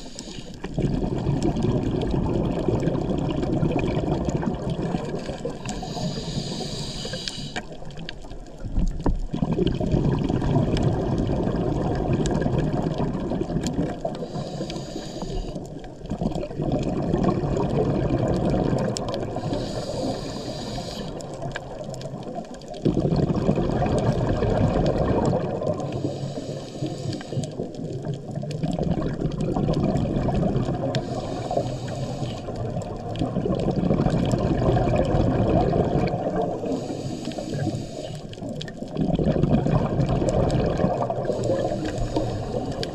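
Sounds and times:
regulator inhale hiss: 0.0 - 0.7, 5.4 - 7.9, 14.1 - 15.8, 19.3 - 21.8, 25.8 - 27.8, 30.8 - 32.8, 36.6 - 38.5, 41.2 - 42.9
exhaled bubbles gurgling: 0.0 - 42.9.

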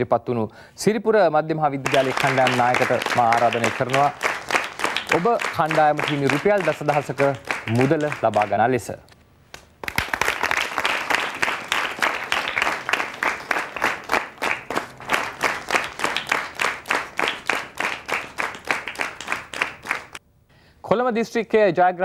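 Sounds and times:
audience applauding: 1.8 - 8.6, 9.8 - 20.2.

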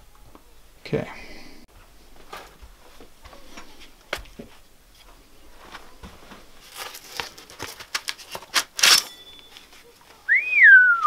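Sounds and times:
wood cracking and tearing: 6.6 - 9.1.

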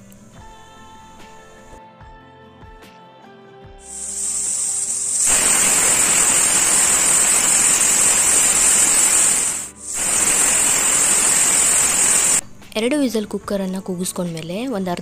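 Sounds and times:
pressure cooker whistling: 3.8 - 12.4.

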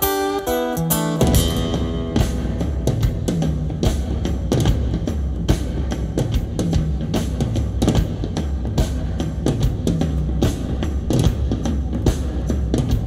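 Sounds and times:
rock music through speakers: 0.0 - 13.0.

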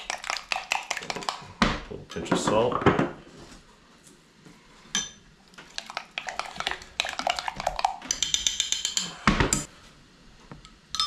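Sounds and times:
utensil stirring thick sauce: 0.0 - 1.6, 5.5 - 8.2.

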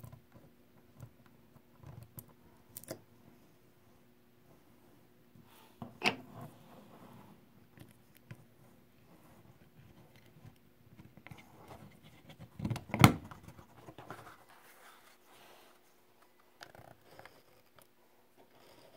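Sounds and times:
faint rubbing on plastic: 13.4 - 16.1.

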